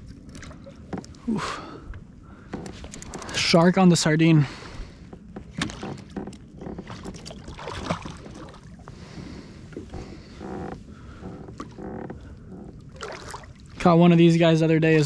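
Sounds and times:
fishing gear knocks and clicks: 0:02.5 - 0:03.6, 0:05.4 - 0:07.4
fish splashing in water: 0:07.2 - 0:08.7, 0:12.9 - 0:13.8.

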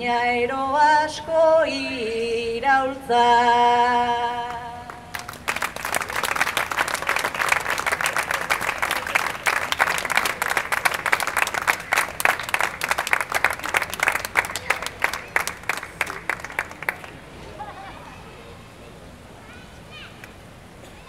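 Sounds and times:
audience clapping: 0:04.9 - 0:17.3.

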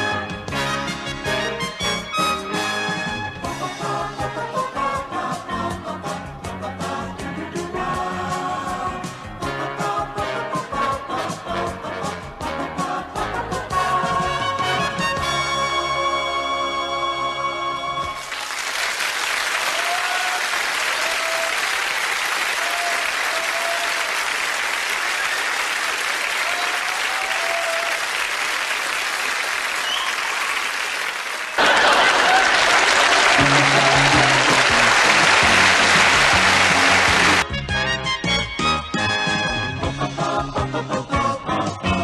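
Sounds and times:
music: 0:00.0 - 0:18.4, 0:33.1 - 0:42.0
audience applauding: 0:18.2 - 0:37.5.

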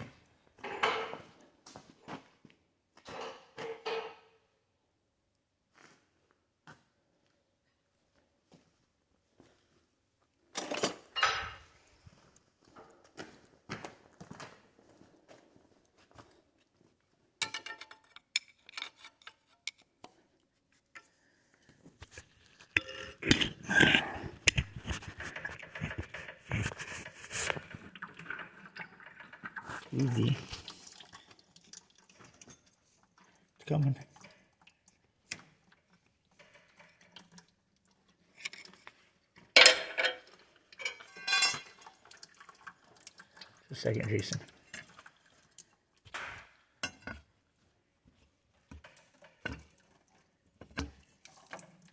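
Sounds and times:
metal tools clinking: 0:10.6 - 0:11.6, 0:17.4 - 0:19.9, 0:39.6 - 0:41.8
rattling clink: 0:40.8 - 0:41.7.

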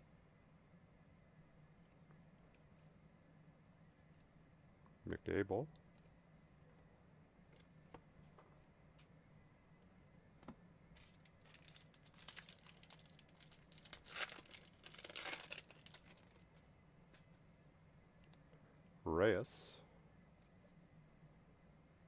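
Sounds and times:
foil wrapper tearing and crinkling: 0:11.0 - 0:16.4.

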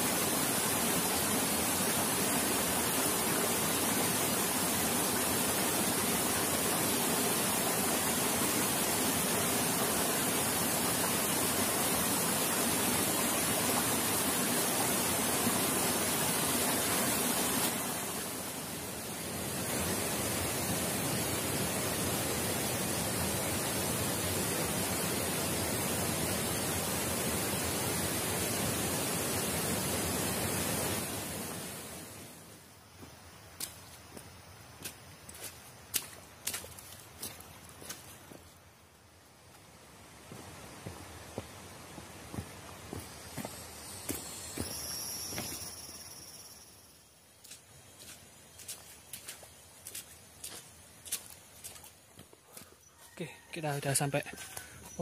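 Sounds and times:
flowing water rushing: 0:00.0 - 0:32.6, 0:40.1 - 0:46.7, 0:47.4 - 0:52.1.

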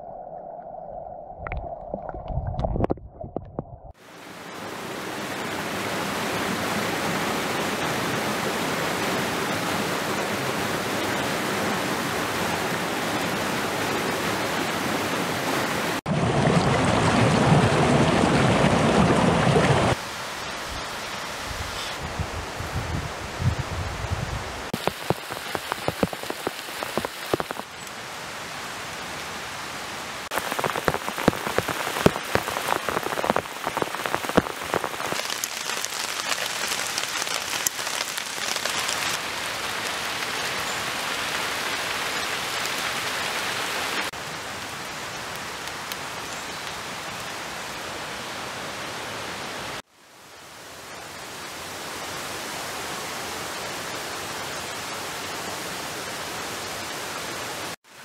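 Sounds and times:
steady rain hiss: 0:04.0 - 0:16.0, 0:19.8 - 0:58.0
raindrops pattering on leaves: 0:24.7 - 0:28.0, 0:30.2 - 0:47.8.

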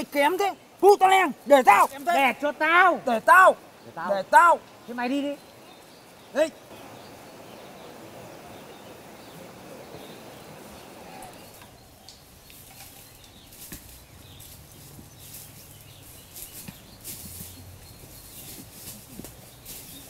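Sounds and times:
footsteps crunching dry leaves: 0:12.4 - 0:20.0.

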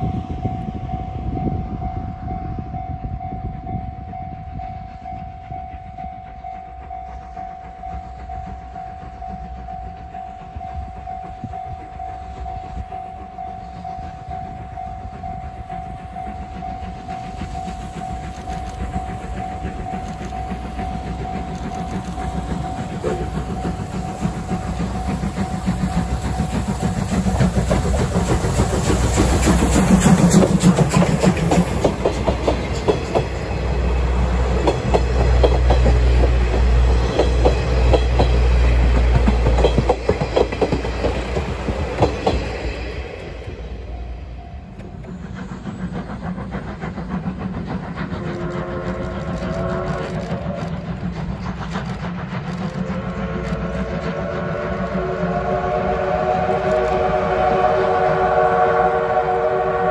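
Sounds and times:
steam locomotive passing: 0:00.0 - 0:59.9
wheels clicking over rail joints: 0:16.4 - 0:43.7.

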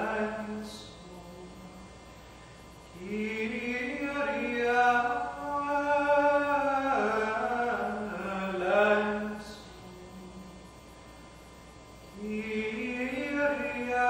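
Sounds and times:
man singing chant: 0:00.0 - 0:01.8, 0:02.9 - 0:10.6, 0:12.2 - 0:14.0.

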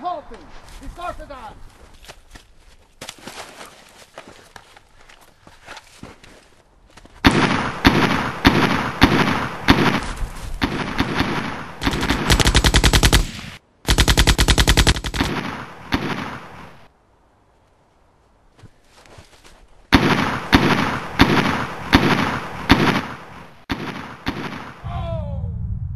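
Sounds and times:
single gunshots: 0:07.2 - 0:16.9, 0:19.9 - 0:24.9
automatic gunfire bursts: 0:10.6 - 0:16.6.

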